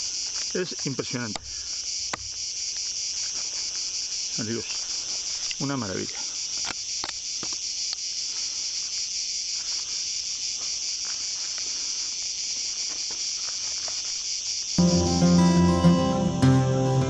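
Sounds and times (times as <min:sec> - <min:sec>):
high-pitched insect chorus: 0:00.0 - 0:15.2
acoustic guitar music: 0:14.8 - 0:17.0.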